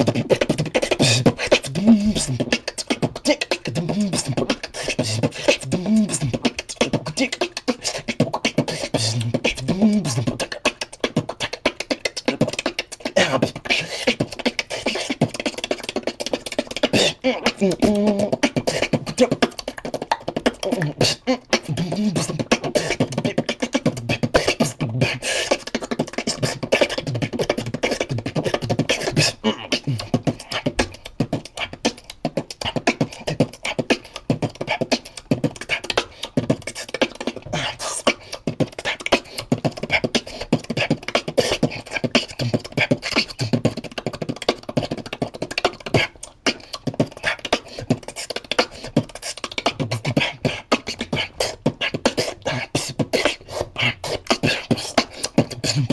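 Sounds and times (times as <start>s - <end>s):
beatboxing: 0.0s - 55.9s.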